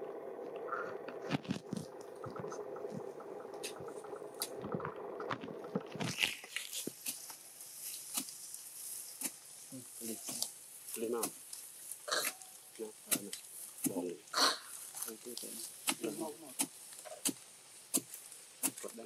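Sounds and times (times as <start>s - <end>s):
steady hum: 0.0s - 6.5s
digging tool crunching into soil: 5.3s - 8.5s, 13.0s - 14.2s, 15.0s - 19.0s
high steady hiss: 6.2s - 19.0s.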